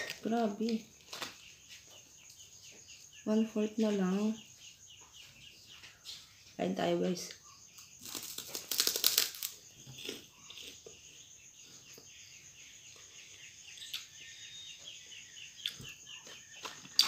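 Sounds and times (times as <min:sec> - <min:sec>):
faint high chirping: 0:00.0 - 0:17.0
crunching puffed snack: 0:08.0 - 0:10.9.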